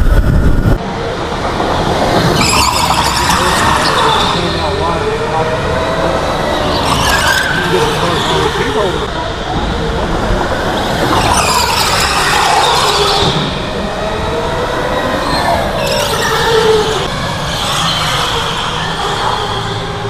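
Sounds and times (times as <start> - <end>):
electric go-karts whining past: 0.0 - 20.0.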